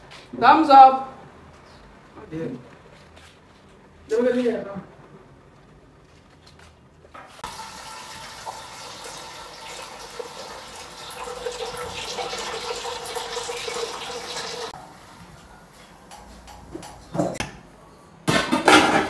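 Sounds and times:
water pouring into metal pot: 0:07.4 - 0:14.8.

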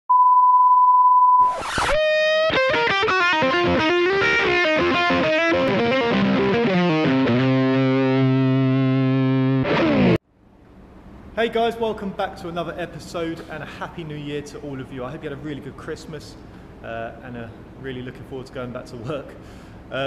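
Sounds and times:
distorted electric guitar riff: 0:01.4 - 0:10.2.

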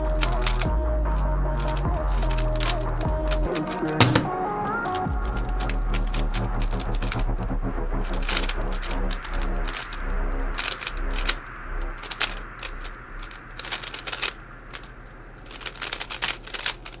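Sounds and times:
plastic cube clicking: 0:00.0 - 0:07.4, 0:08.0 - 0:17.0
background music: 0:00.0 - 0:14.8.

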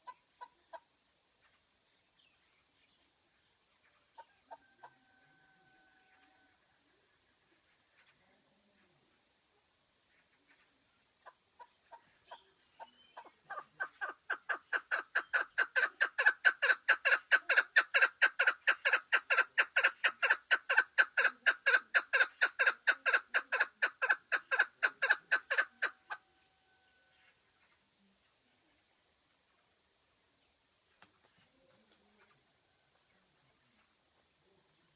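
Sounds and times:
partridge clucking calls: 0:00.0 - 0:01.6, 0:10.2 - 0:26.2.

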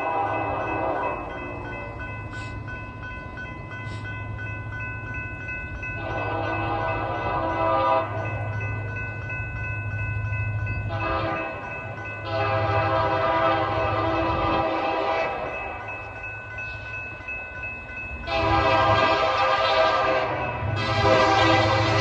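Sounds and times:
locomotive air horn blasts: 0:00.0 - 0:01.2, 0:06.0 - 0:08.2, 0:10.9 - 0:11.6, 0:12.2 - 0:15.5, 0:18.3 - 0:22.0
crossing signal bell ringing: 0:00.0 - 0:22.0.

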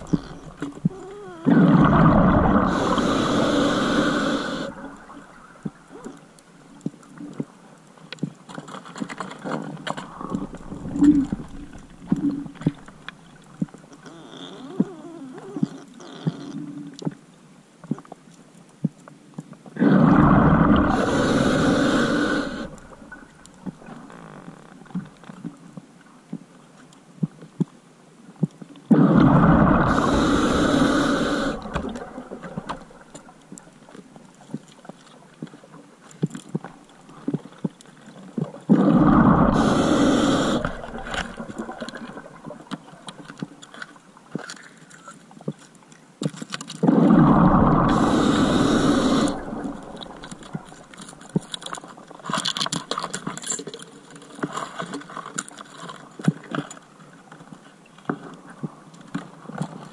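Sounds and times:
exhaled bubbles rushing: 0:00.0 - 0:05.6, 0:19.8 - 0:24.0, 0:29.0 - 0:33.4, 0:38.7 - 0:42.7, 0:46.9 - 0:51.0
faint clicking and crackling: 0:00.0 - 0:59.9.

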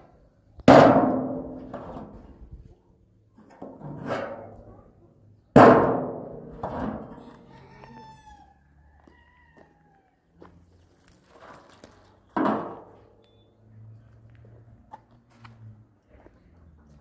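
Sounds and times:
faint animal call: 0:07.2 - 0:10.3.

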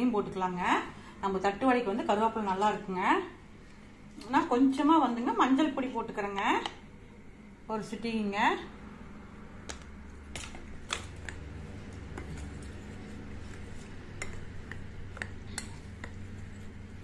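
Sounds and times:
low steady hum: 0:00.0 - 0:17.0
spoon stirring flour in glass bowl: 0:10.4 - 0:17.0.

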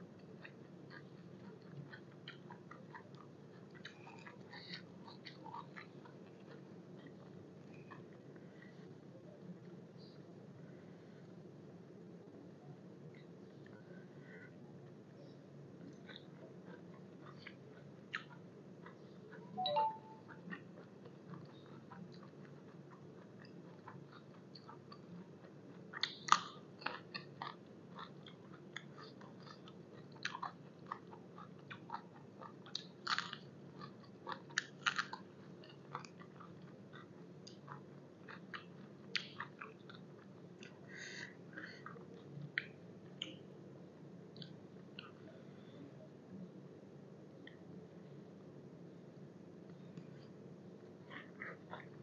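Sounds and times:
low steady hum: 0:00.0 - 0:52.0
person chewing crunchy vegetables: 0:00.1 - 0:08.4, 0:15.8 - 0:43.4, 0:51.0 - 0:52.0.

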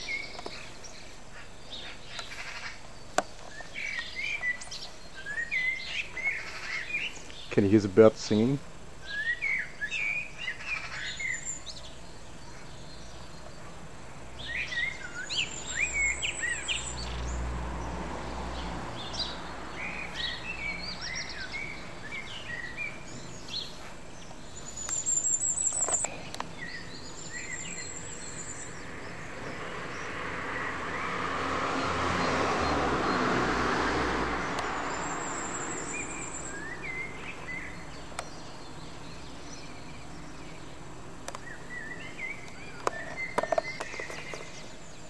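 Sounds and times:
songbirds chirping and whistling: 0:00.0 - 0:45.0.

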